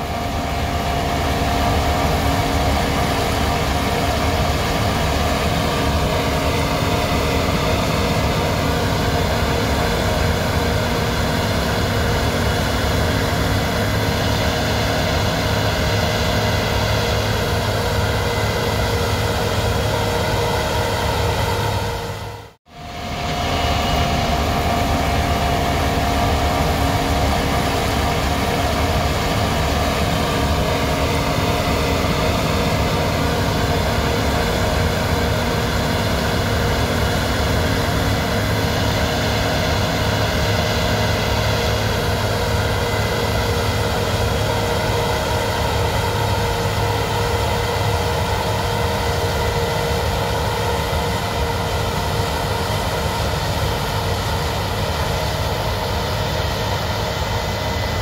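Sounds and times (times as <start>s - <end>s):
combine harvester drone: 0.0s - 58.0s.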